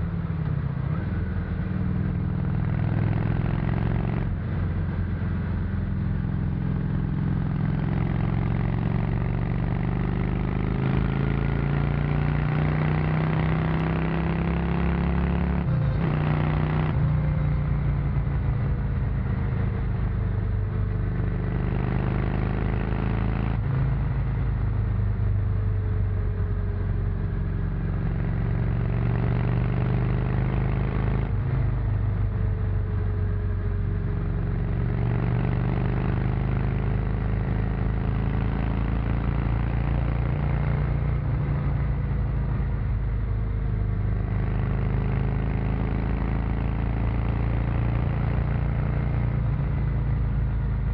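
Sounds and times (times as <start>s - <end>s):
motorcycle engine under way: 0.0s - 24.2s, 24.8s - 50.9s.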